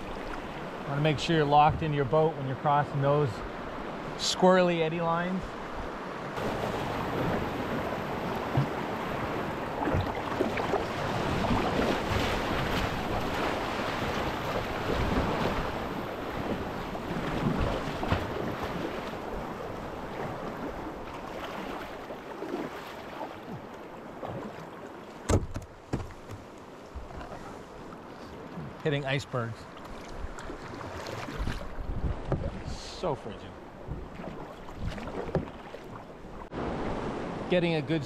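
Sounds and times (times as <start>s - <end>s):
paddle splashes: 0.0s - 37.5s
whitewater rushing and splashing: 0.0s - 38.0s
sharp knocks: 25.3s - 26.4s.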